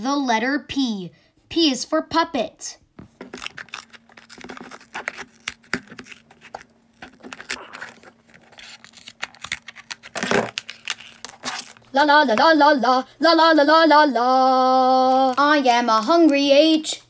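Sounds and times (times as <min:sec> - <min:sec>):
scissors snipping carton: 0:03.3 - 0:11.8.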